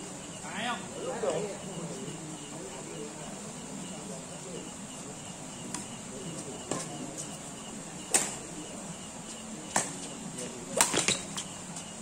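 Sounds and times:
rackets hitting shuttlecock: 0:08.1 - 0:08.4, 0:09.7 - 0:10.0, 0:10.8 - 0:11.5.

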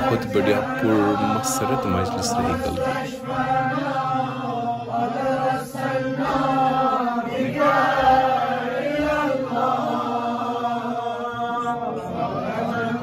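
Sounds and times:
man chanting into a microphone: 0:00.0 - 0:03.0.

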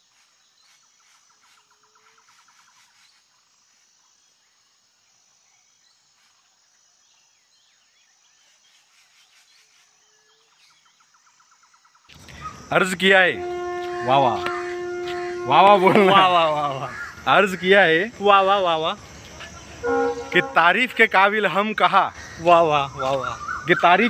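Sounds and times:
distant birds chirping: 0:07.4 - 0:24.0.

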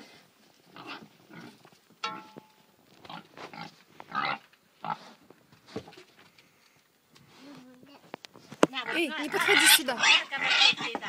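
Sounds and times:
pig grunting: 0:08.9 - 0:10.9.

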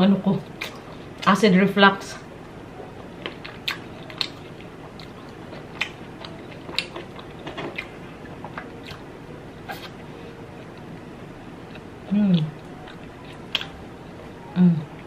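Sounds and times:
person chewing: 0:03.2 - 0:09.0, 0:09.6 - 0:10.0, 0:11.7 - 0:13.8.

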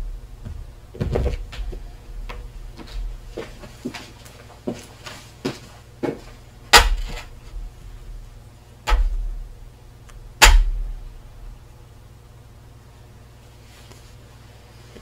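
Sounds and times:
sharp knocks on metal sheet: 0:06.7 - 0:07.3, 0:08.9 - 0:09.3, 0:10.4 - 0:10.9.

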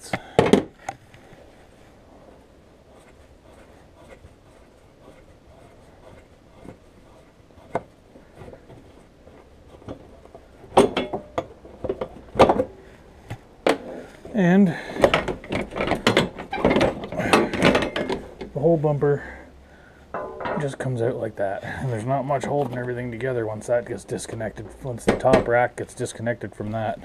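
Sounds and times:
metal knocks and clanks: 0:09.8 - 0:12.8, 0:14.9 - 0:18.6, 0:20.1 - 0:20.9.

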